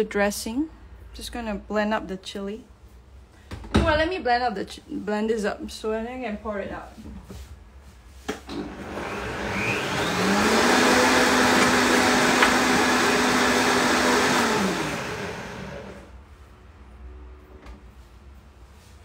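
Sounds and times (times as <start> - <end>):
electric blender motor: 8.5 - 16.1.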